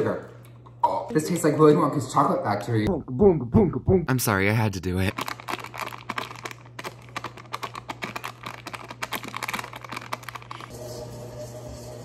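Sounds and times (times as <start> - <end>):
paper wrapper crinkling: 5.1 - 10.7.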